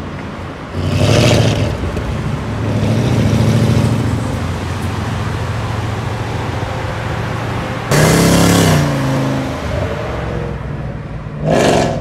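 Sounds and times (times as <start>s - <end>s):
road noise: 0.0s - 12.0s.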